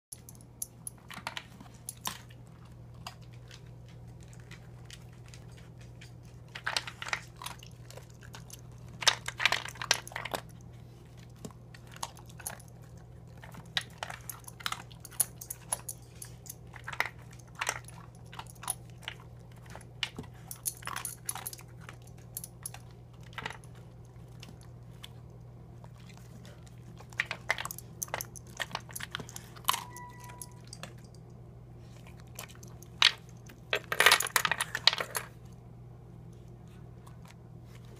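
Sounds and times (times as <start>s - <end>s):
dog crunching dry kibble: 0.2s - 31.2s, 31.8s - 35.6s
low hum: 0.2s - 37.9s.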